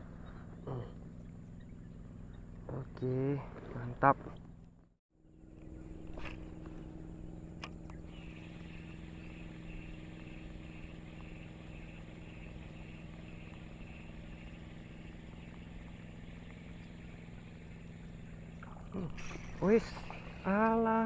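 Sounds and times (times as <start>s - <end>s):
steady low hum: 0.0s - 21.0s
pulsing high chirr: 5.6s - 21.0s.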